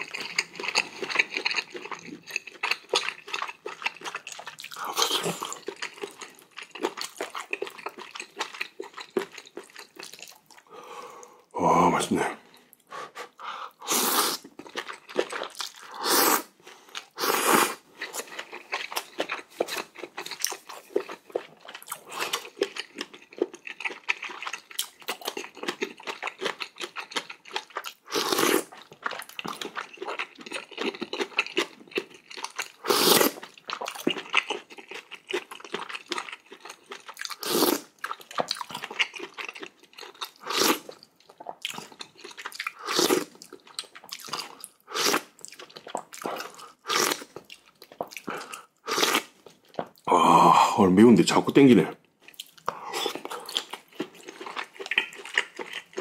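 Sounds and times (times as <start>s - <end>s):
wet chewing and crunching: 0.0s - 10.7s, 13.7s - 50.1s, 52.0s - 56.0s
noodle slurps: 13.1s - 14.5s, 15.8s - 17.8s, 32.8s - 33.4s.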